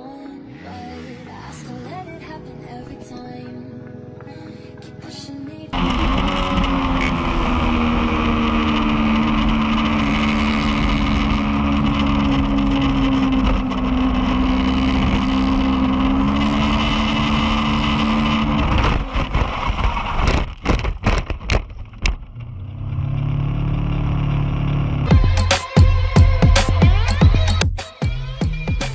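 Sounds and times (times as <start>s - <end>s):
low rumble: 5.7s - 25.3s
motorcycle engine at high speed: 5.7s - 27.6s
motorcycle crashing and tumbling: 5.8s - 24.9s.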